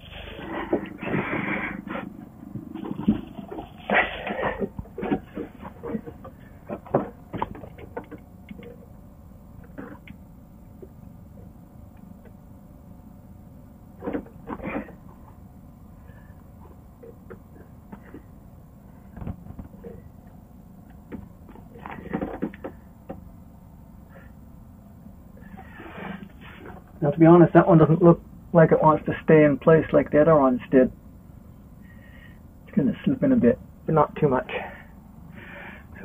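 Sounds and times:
scrapes and knocks of hand work: 0.0s - 8.8s.

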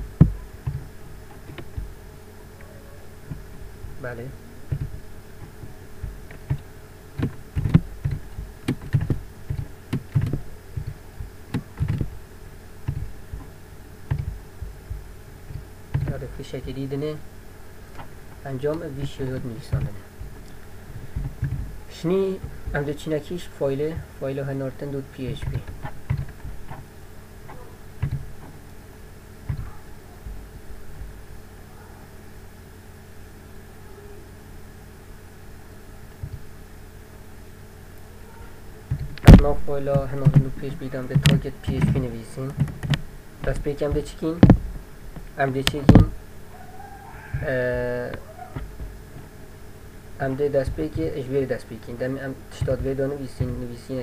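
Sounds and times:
faint electrical hum: 0.0s - 54.0s
keyboard keystrokes: 6.3s - 12.1s, 12.8s - 13.4s, 14.1s - 16.2s.

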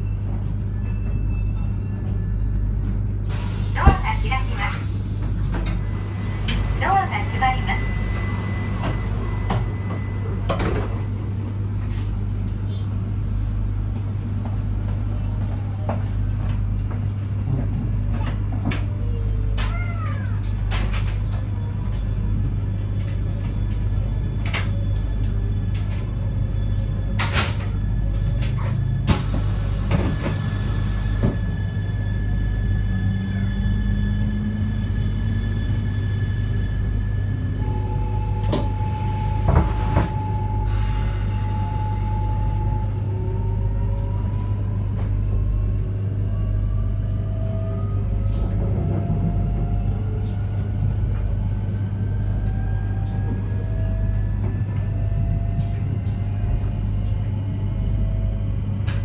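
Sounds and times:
train inverter whine rising: 3.5s - 14.9s, 21.6s - 59.0s.

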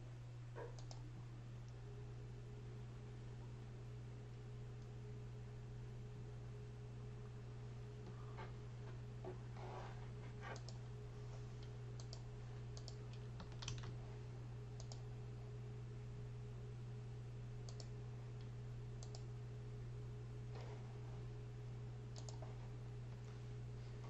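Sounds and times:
steady low hum: 0.0s - 24.0s
keyboard and mouse clicks: 0.6s - 1.0s, 10.5s - 10.8s, 12.0s - 12.2s, 12.8s - 14.0s, 14.8s - 15.0s, 17.7s - 17.9s, 19.0s - 19.3s, 22.1s - 22.4s.

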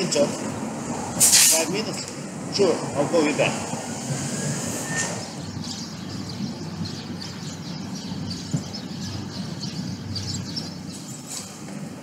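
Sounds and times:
city background noise: 0.0s - 12.0s
small birds chirping: 5.2s - 11.6s.

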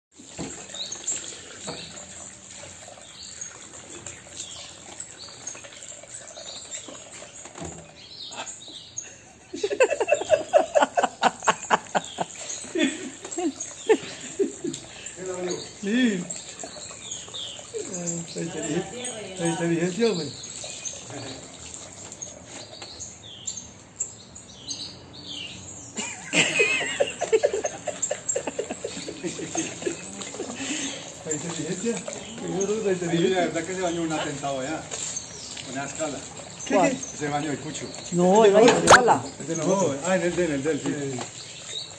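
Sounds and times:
parrot wings splashing water: 0.1s - 8.4s, 9.0s - 23.2s, 26.0s - 41.9s
tap water running into sink: 0.2s - 8.0s, 9.6s - 23.0s, 26.2s - 41.9s
high bird chirps: 3.0s - 25.9s.

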